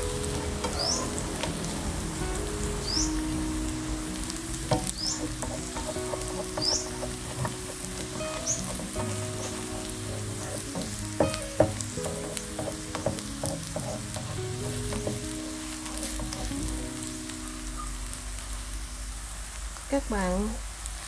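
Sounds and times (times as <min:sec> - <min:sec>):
noodles sizzling in oil: 0:00.0 - 0:21.0
spatula tapping against a pan: 0:04.7 - 0:16.8
spatula scraping a pan: 0:04.8 - 0:16.8.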